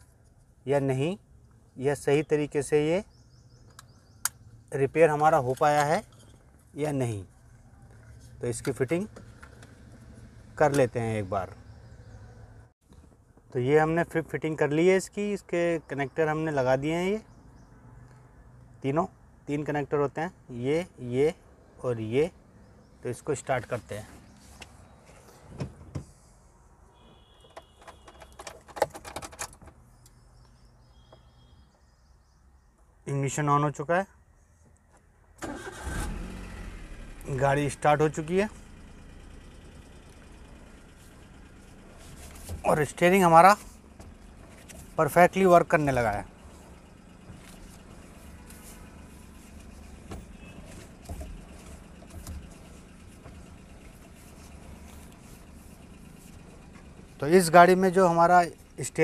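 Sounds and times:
car engine idling: 0:03.1 - 0:13.2, 0:35.4 - 0:59.0
ignition key clicking and rattling: 0:27.5 - 0:29.8.

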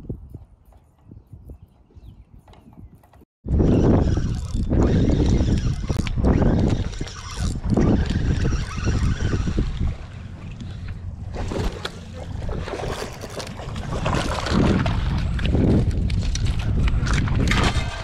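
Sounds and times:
wind buffeting microphone: 0:00.0 - 0:18.0
fish splashing in water: 0:11.3 - 0:18.0.

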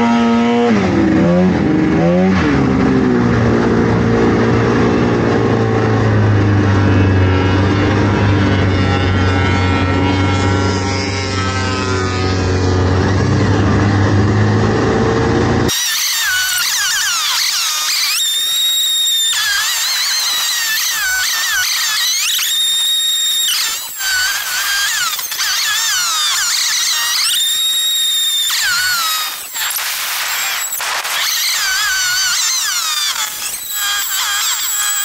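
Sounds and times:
snowmobile engine running: 0:00.0 - 0:35.0.

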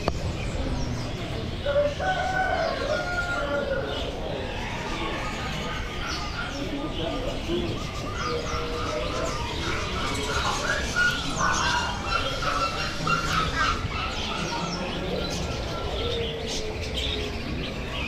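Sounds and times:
songbirds chirping and calling: 0:00.0 - 0:18.0
steady background noise: 0:00.0 - 0:18.0.

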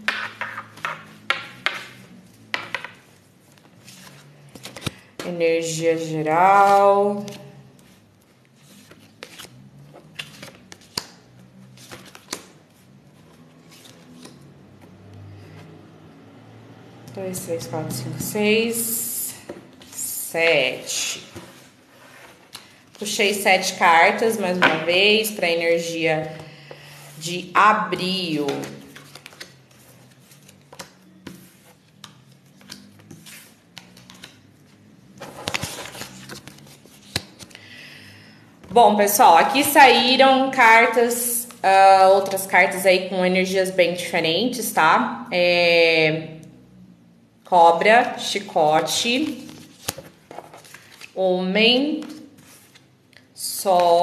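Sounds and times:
cards rustling: 0:00.1 - 0:05.2, 0:06.6 - 0:15.0, 0:28.0 - 0:37.7, 0:49.2 - 0:51.2, 0:51.9 - 0:53.3
cards tapping and sliding: 0:08.8 - 0:12.5.

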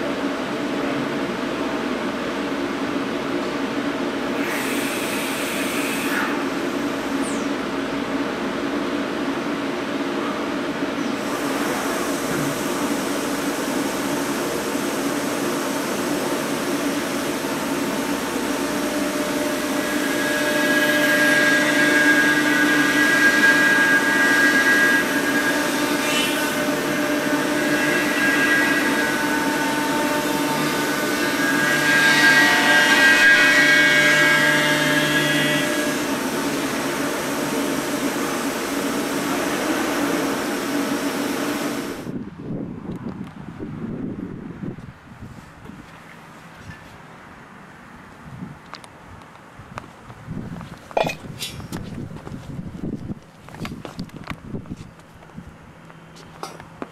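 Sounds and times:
milling machine hum: 0:03.7 - 0:42.1
cutting whine: 0:11.0 - 0:42.2.

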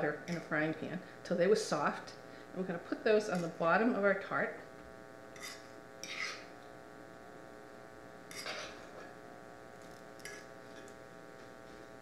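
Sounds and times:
steady electrical hum: 0:00.0 - 0:12.0
metal utensil scraping frying pan: 0:05.4 - 0:06.5, 0:08.3 - 0:08.8.

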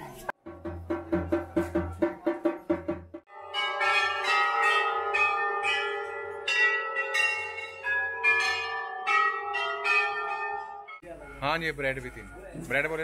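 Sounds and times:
metal temple bells clanging: 0:03.2 - 0:13.0.

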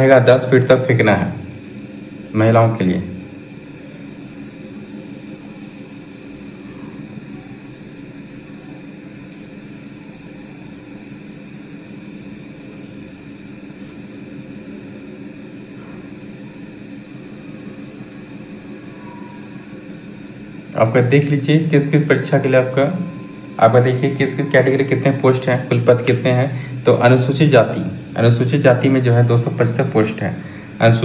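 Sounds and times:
low even hum: 0:00.0 - 0:31.0
background hiss: 0:20.1 - 0:31.0.

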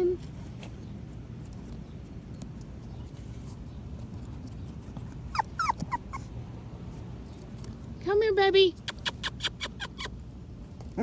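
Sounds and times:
puppy whimpering: 0:04.8 - 0:06.3, 0:09.0 - 0:10.2.

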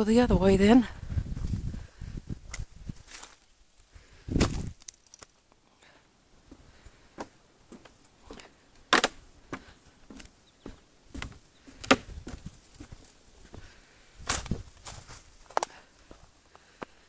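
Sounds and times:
footsteps on dry leaves and wood: 0:01.2 - 0:05.6, 0:06.4 - 0:17.0.

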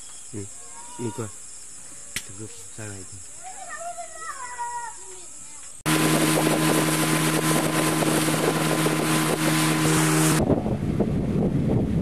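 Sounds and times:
insect chorus: 0:00.0 - 0:05.9
water noise: 0:05.8 - 0:12.0
boat motor running: 0:05.9 - 0:11.3
wind rushing over microphone: 0:05.9 - 0:12.0.

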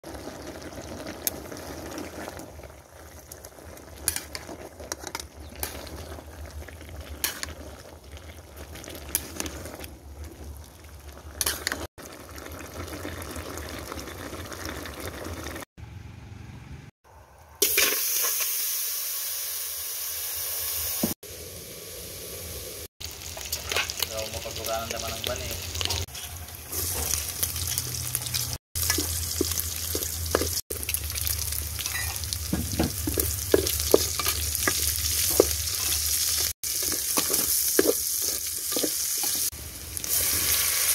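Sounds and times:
food sizzling: 0:00.0 - 0:15.7, 0:17.6 - 0:40.9
pork frying in oil: 0:00.0 - 0:15.7, 0:17.6 - 0:40.9
vegetables simmering: 0:00.0 - 0:15.7, 0:22.2 - 0:40.9
metal ladle clinking on pot: 0:31.8 - 0:32.2.

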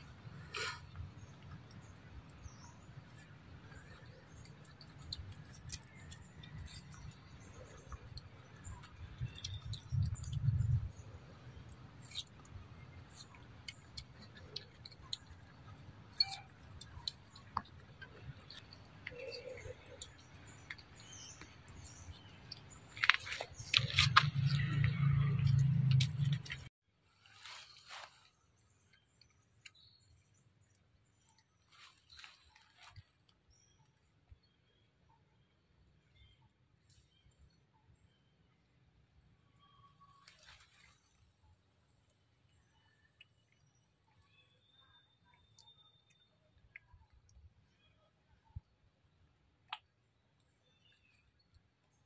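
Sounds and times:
monkeys chewing fruit: 0:00.0 - 0:26.7.

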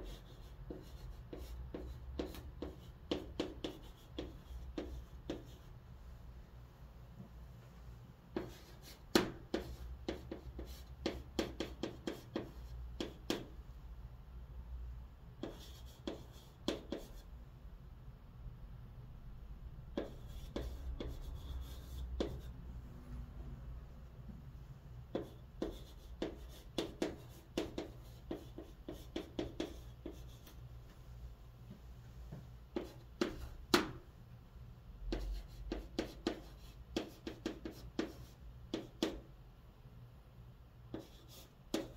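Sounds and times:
chalk writing on chalkboard: 0:00.0 - 0:05.8, 0:08.3 - 0:13.5, 0:15.4 - 0:17.3, 0:19.9 - 0:22.6, 0:25.1 - 0:30.6, 0:32.7 - 0:34.0, 0:35.1 - 0:39.3, 0:40.9 - 0:41.9.

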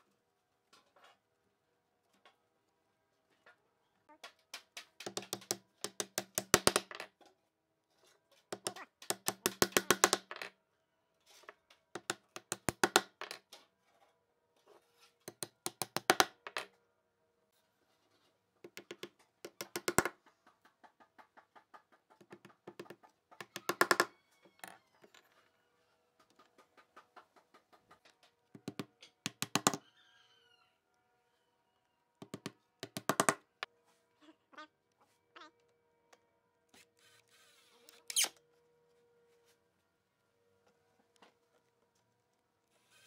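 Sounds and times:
hammer driving nails into wood: 0:04.8 - 0:07.0, 0:08.6 - 0:10.3, 0:28.6 - 0:29.8.

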